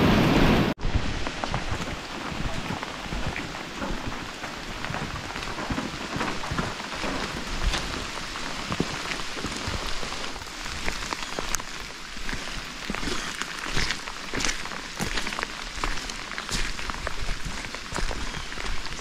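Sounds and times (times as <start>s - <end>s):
steady rain falling: 0.0s - 19.0s.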